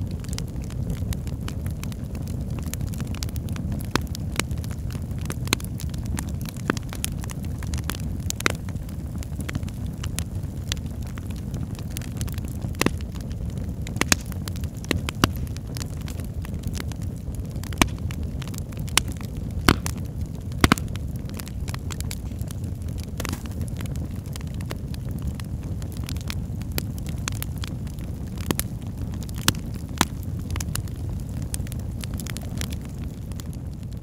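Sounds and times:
fire crackling and popping: 0.0s - 34.0s
low rumble of flames: 0.0s - 34.0s.

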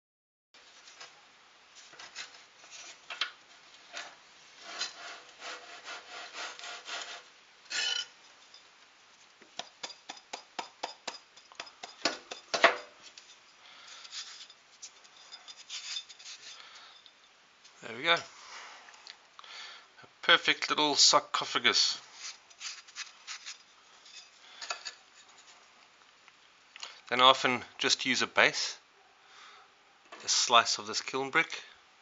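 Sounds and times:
scraping and rubbing on brick: 4.6s - 8.1s, 11.5s - 16.6s, 22.2s - 25.6s.

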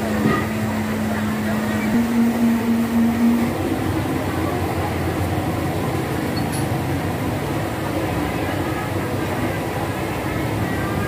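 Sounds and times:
steady hum: 0.0s - 6.2s
rumbling street noise: 0.0s - 11.0s.

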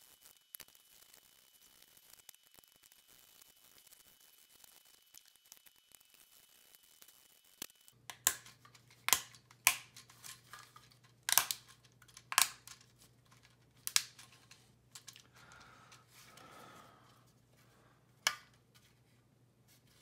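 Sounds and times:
plastic clicks and snaps: 8.1s - 15.3s, 18.2s - 18.6s.

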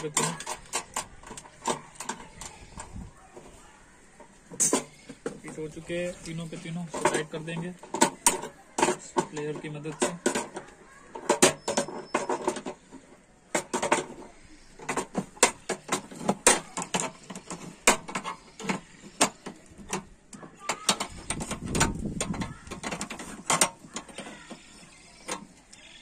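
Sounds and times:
pliers clicking and scraping metal: 0.0s - 3.0s.

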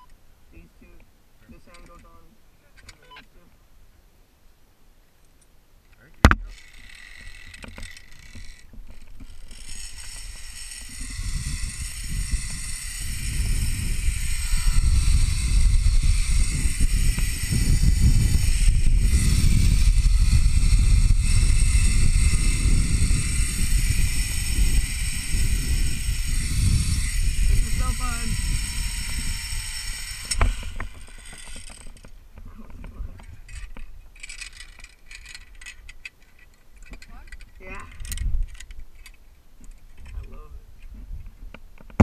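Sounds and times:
pulleys whirring along cable: 6.4s - 32.1s, 33.5s - 35.9s
wind rushing over microphone: 10.2s - 34.0s, 37.6s - 38.6s.

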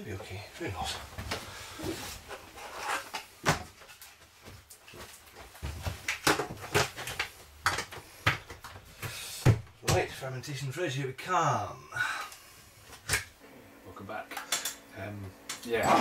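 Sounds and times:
plastic rustling and scraping: 0.8s - 8.9s.

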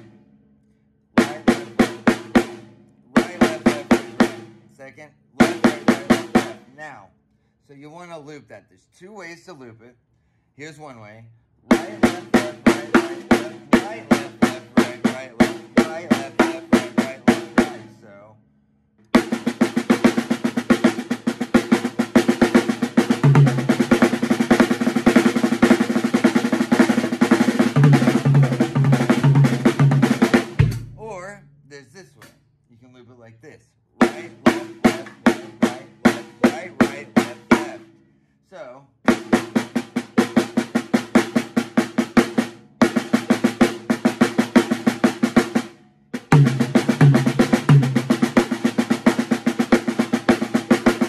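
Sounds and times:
snare drum fast strokes: 1.2s - 4.6s, 5.4s - 6.7s, 11.7s - 18.0s, 19.2s - 31.2s, 34.0s - 37.9s, 39.1s - 51.0s
deeper drum hits: 27.1s - 31.2s, 34.0s - 37.8s.

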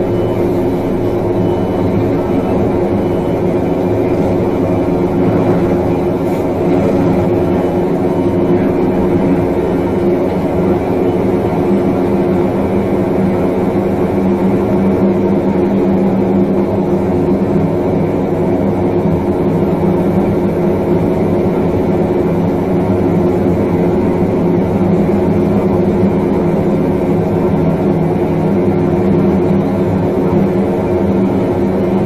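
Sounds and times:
vehicle engine idling: 0.0s - 32.0s.

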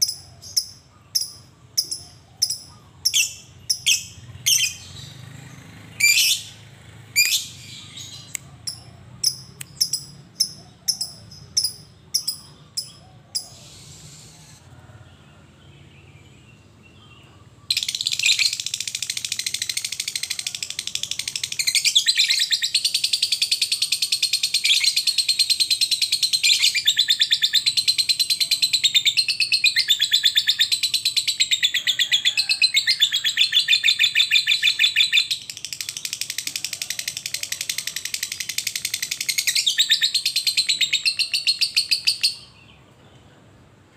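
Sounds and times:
bird chirping and trilling: 0.0s - 14.7s, 16.9s - 42.7s.

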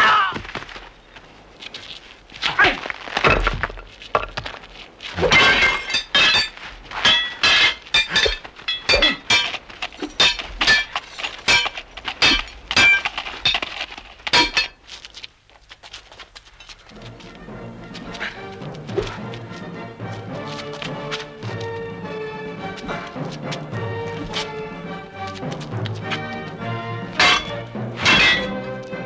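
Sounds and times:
swords clashing: 5.2s - 13.6s, 14.4s - 14.8s, 27.0s - 29.0s.

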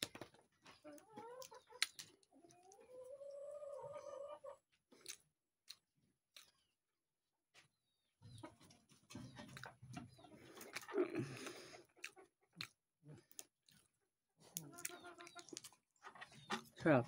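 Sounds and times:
chewing smacks and clicks: 1.3s - 2.3s, 4.9s - 6.6s, 9.4s - 15.9s.

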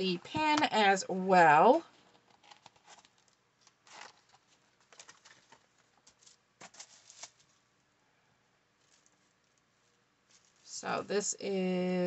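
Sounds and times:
soft paper rustles: 2.0s - 7.7s, 8.8s - 10.8s.

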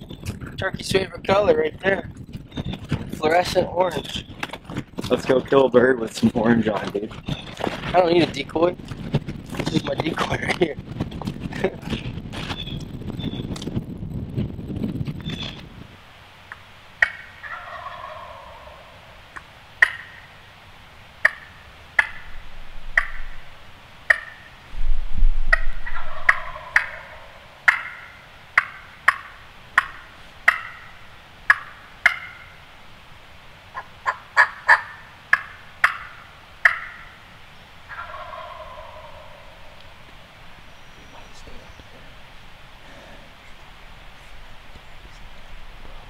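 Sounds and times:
low rumble: 8.7s - 16.0s, 22.1s - 23.8s, 24.7s - 27.6s
turkey clucks and yelps: 16.5s - 20.4s, 21.2s - 23.4s, 24.1s - 24.6s, 25.5s - 32.6s, 33.7s - 37.2s, 37.9s - 40.0s
turkey gobbling: 16.5s - 20.4s, 21.2s - 24.6s, 25.5s - 32.6s, 33.7s - 40.0s.

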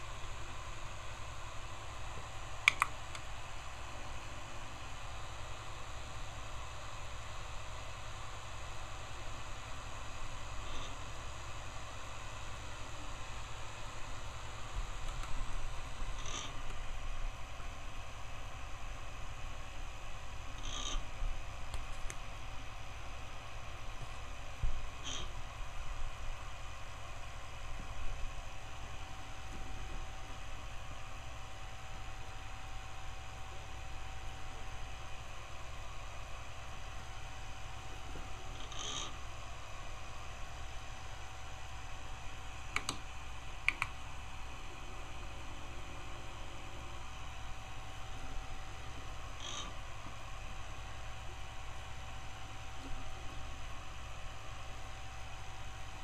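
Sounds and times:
motor low hum and buzz: 0.0s - 56.0s
sharp clicks: 2.6s - 3.3s, 15.0s - 15.4s, 42.7s - 44.0s.

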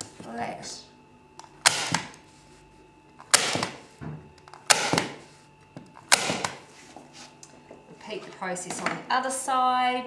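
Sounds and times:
staple gun firing: 1.6s - 2.1s.

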